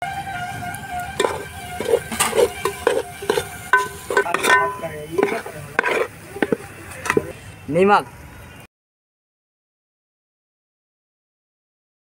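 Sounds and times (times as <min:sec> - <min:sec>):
metal ladle scraping a pot: 0:00.9 - 0:07.4.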